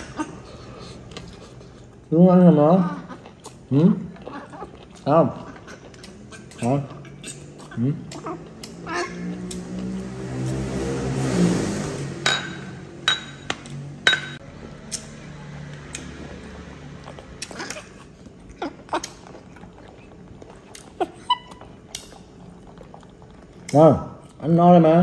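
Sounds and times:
tableware clinking: 12.2s - 14.4s.

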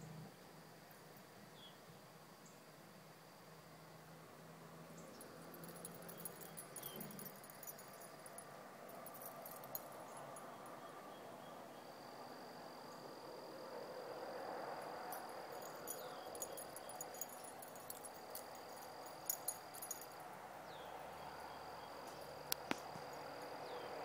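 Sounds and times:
faint outdoor background noise: 0.0s - 24.0s
insects trilling: 5.0s - 24.0s.

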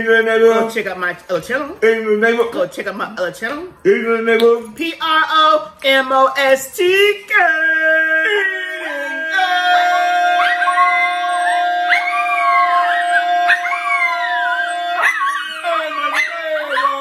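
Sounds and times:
dog howling: 8.2s - 17.0s.

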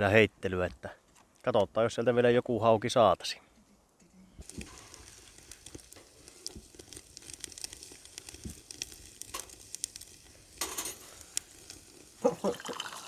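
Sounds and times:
sausages sizzling and crackling: 4.4s - 13.0s.

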